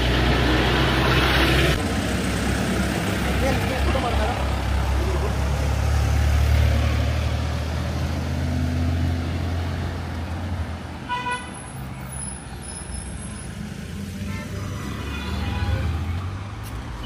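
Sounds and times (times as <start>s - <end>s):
vehicle engine rumbling past: 0.0s - 10.4s
vehicle horn toot: 11.1s - 11.6s.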